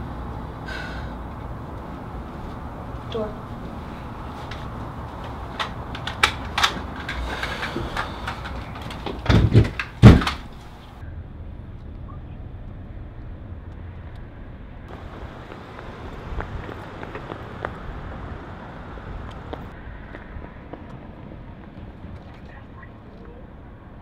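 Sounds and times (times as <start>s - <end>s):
heavy thumps: 4.3s - 11.0s
sharp clicks and knocks: 4.5s - 10.8s
car cabin rumble: 14.9s - 24.0s.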